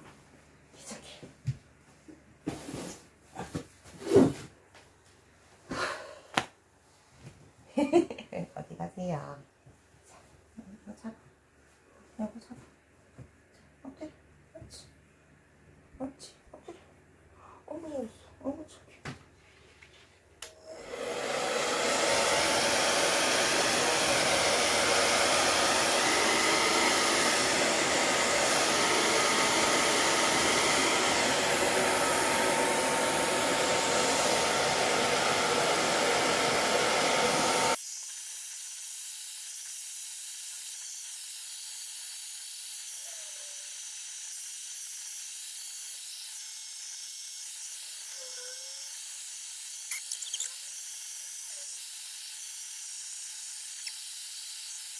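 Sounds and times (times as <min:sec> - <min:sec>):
hair dryer blowing: 0:20.4 - 0:37.8.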